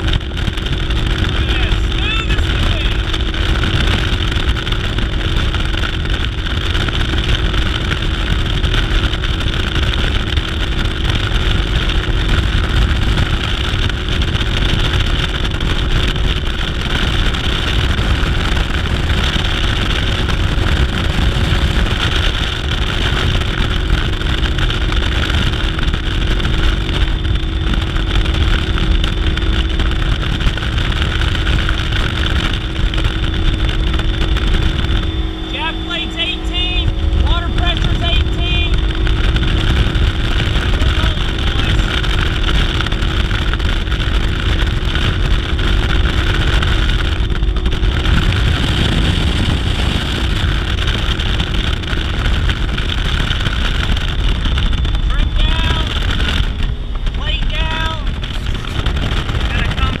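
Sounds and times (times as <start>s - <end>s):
outboard boat engine: 0.0s - 60.0s
water noise from hull: 0.0s - 60.0s
wind on microphone: 0.0s - 60.0s.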